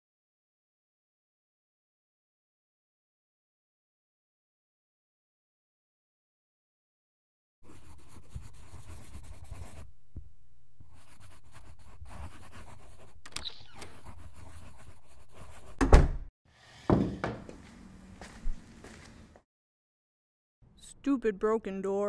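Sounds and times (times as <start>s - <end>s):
loud thump: 15.8s - 16.3s.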